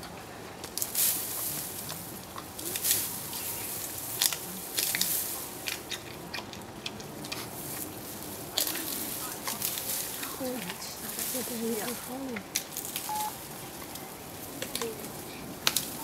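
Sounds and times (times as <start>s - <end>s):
bamboo cracking: 0.0s - 16.0s
panda chewing bamboo: 0.0s - 16.0s.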